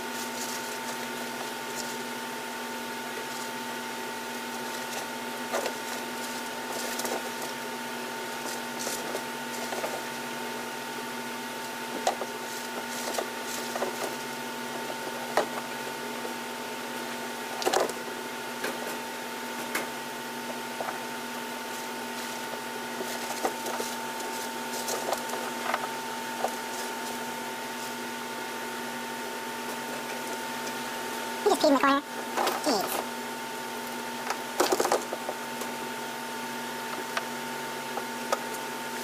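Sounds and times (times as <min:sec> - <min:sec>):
chinchillas scratching in cage: 0:00.0 - 0:10.6, 0:11.4 - 0:15.8, 0:18.6 - 0:28.3
electrical hum: 0:00.0 - 0:39.0.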